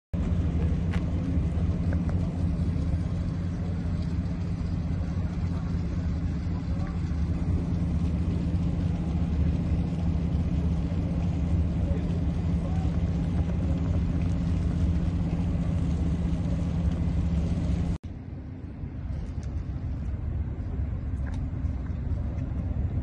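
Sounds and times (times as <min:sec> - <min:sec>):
ship machinery rumbling: 0:00.2 - 0:23.0
faint crowd voices: 0:00.3 - 0:17.7.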